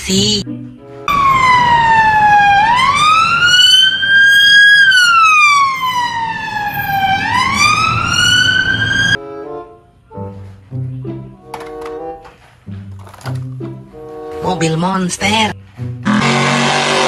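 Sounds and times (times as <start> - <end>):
police siren wailing: 1.1 - 9.2.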